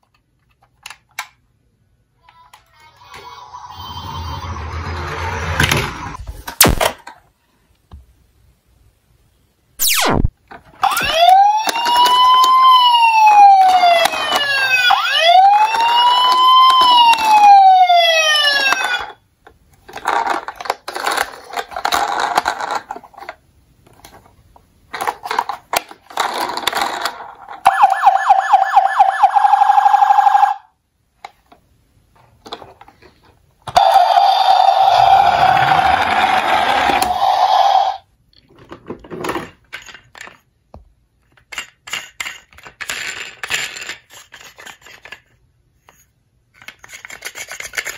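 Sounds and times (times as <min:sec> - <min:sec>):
choppy electronic sound effects: 0:09.8 - 0:10.3
fast-pulsing siren tone: 0:09.8 - 0:10.3, 0:27.7 - 0:30.6, 0:33.8 - 0:38.0
toy siren wailing: 0:10.8 - 0:19.2, 0:27.6 - 0:30.7, 0:33.8 - 0:38.0.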